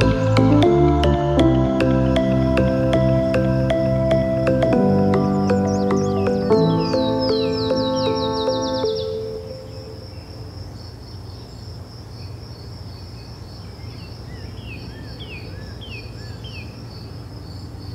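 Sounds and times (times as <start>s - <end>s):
music: 0.0s - 10.0s
insects chirping: 0.0s - 17.9s.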